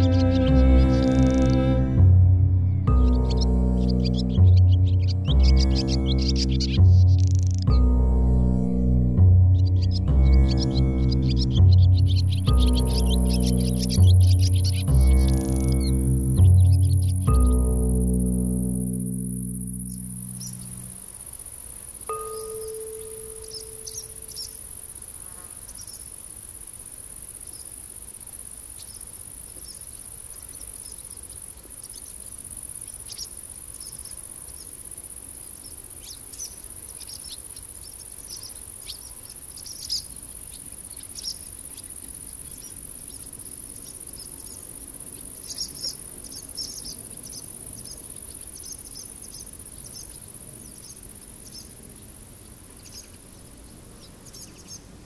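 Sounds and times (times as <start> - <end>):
insects stridulating drone: 0.0 - 55.0
short high insect chirps: 10.6 - 50.2.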